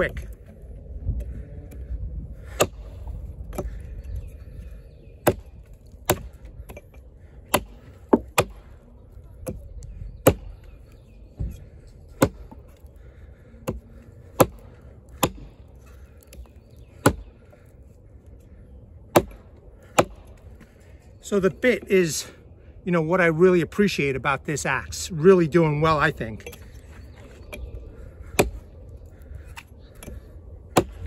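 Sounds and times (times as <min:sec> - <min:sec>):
axe chopping into log: 0:02.5 - 0:02.9, 0:05.2 - 0:06.8, 0:07.5 - 0:08.6, 0:10.2 - 0:10.5, 0:12.1 - 0:12.6, 0:14.4 - 0:14.6, 0:15.2 - 0:15.5, 0:17.0 - 0:17.2, 0:19.1 - 0:20.3, 0:28.4 - 0:28.6, 0:30.7 - 0:31.0.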